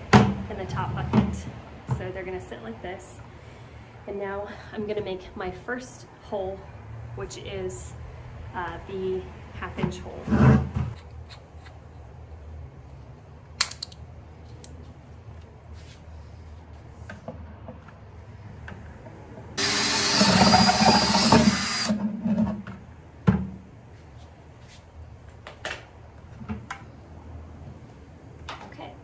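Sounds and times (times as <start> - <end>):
cordless drill drilling plastic: 19.6 - 22.0.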